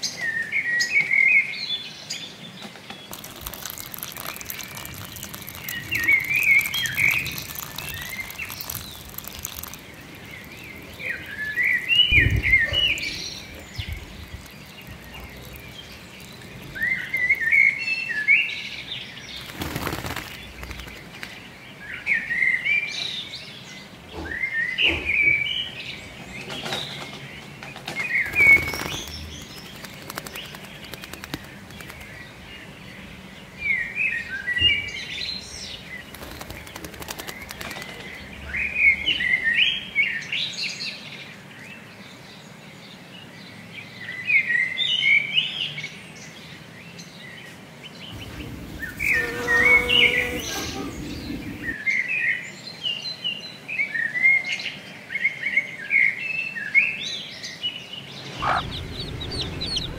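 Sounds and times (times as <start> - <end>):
blackbird singing: 0.0 - 42.0, 48.1 - 59.9
bird splashing in puddle: 2.9 - 17.7, 19.2 - 21.5, 28.1 - 32.3, 36.0 - 38.3, 58.4 - 59.9.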